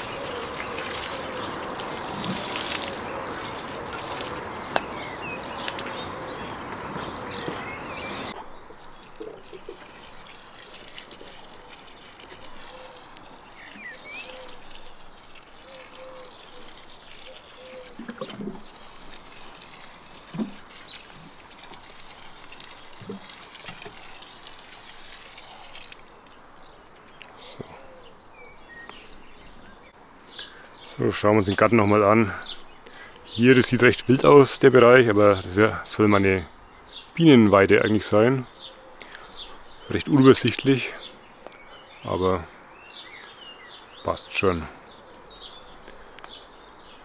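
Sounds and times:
liquid splashing onto soil: 0.0s - 6.1s, 8.8s - 26.8s
faint bird chirps: 4.8s - 18.9s.

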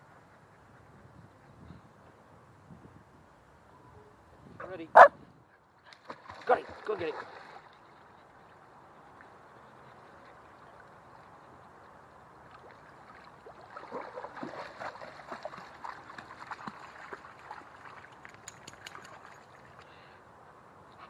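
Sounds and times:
dog splashing through water: 5.8s - 8.2s, 12.4s - 19.8s.

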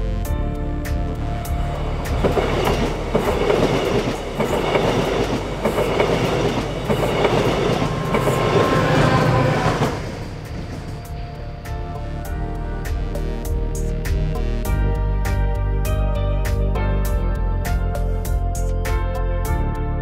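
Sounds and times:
diesel train passing at speed: 1.1s - 14.0s
train coaches running over rails: 1.3s - 12.3s.

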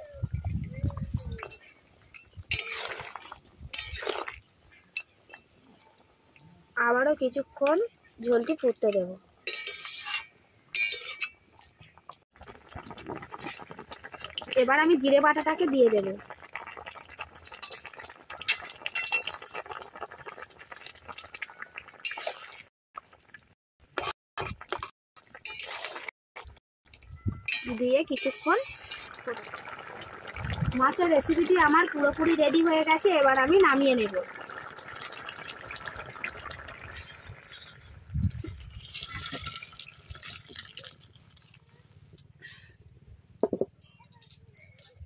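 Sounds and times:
curry bubbling in a pan: 0.4s - 4.5s, 10.8s - 26.5s, 27.8s - 41.7s
gravy boiling in a wok: 0.4s - 4.7s, 12.3s - 26.6s, 27.7s - 41.7s
curry slopping into a steel bowl: 1.4s - 5.1s, 34.0s - 41.6s.

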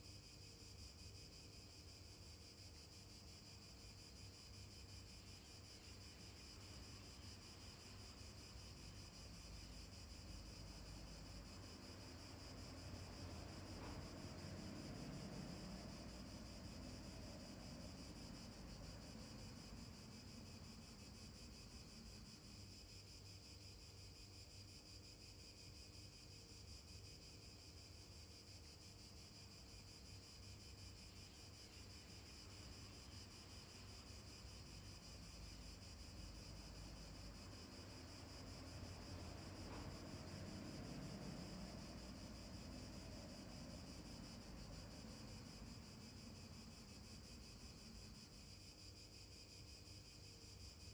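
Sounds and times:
faint outdoor hiss: 0.0s - 50.9s.

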